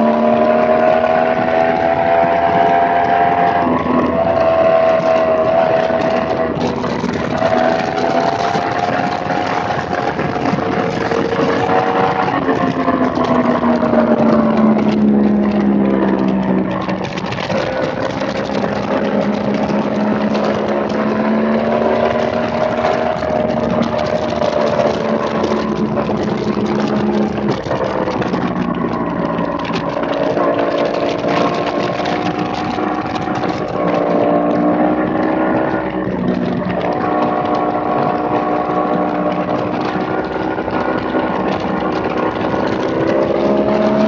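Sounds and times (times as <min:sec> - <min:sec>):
motorcycle engine pulling hard: 0:00.0 - 0:44.0
wind noise on microphone: 0:00.0 - 0:44.0.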